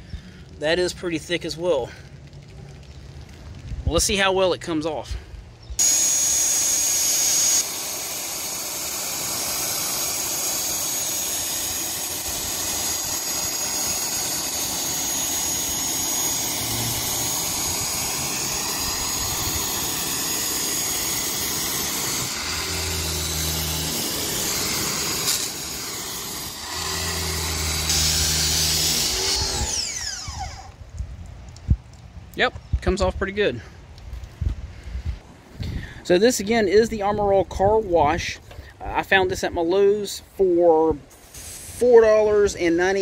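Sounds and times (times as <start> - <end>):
pressure washer spray hissing on metal: 5.8 - 30.6, 41.1 - 43.0.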